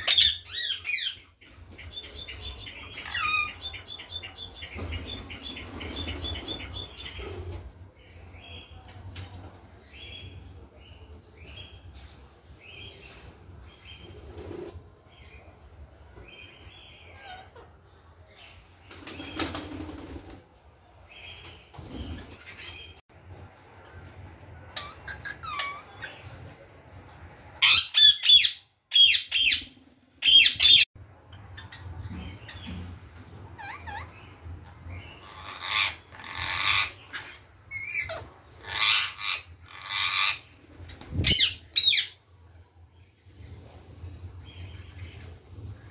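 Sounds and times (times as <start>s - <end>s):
parakeets screeching: 0.0s - 1.3s, 2.8s - 3.6s, 24.7s - 26.3s, 27.6s - 30.8s, 33.6s - 42.2s
wings flapping: 18.9s - 20.4s, 21.8s - 22.8s.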